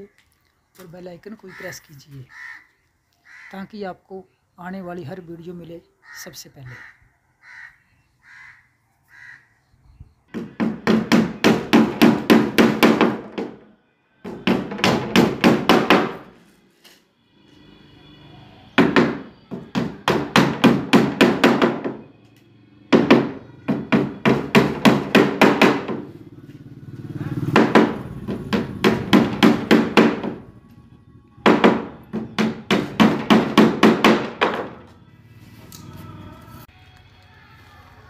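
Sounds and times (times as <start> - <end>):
hammer striking wood: 10.3 - 16.3, 18.8 - 22.0, 22.9 - 26.1, 27.5 - 30.5, 31.4 - 34.9.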